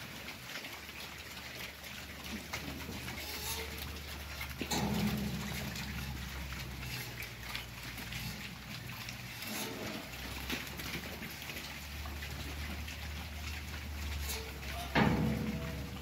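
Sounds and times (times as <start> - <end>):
boars crunching and chewing: 0.0 - 16.0.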